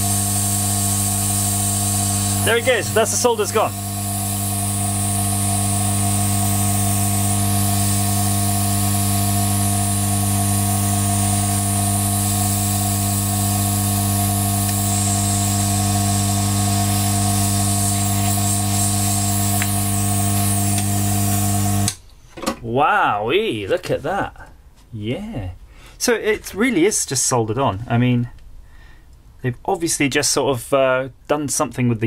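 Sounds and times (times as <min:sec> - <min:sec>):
steady hum: 0:00.0 - 0:21.9
hot air blower hissing: 0:00.0 - 0:22.0.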